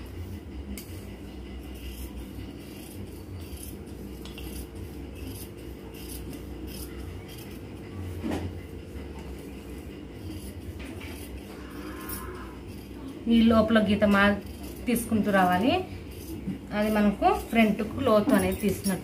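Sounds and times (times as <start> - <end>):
scissors snipping fabric: 2.7 - 7.6, 12.0 - 19.0.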